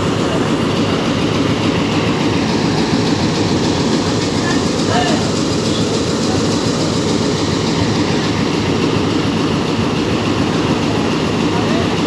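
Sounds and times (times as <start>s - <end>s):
diesel locomotive engine rumble: 0.0s - 12.0s
train wheels rolling on rails: 0.0s - 12.0s.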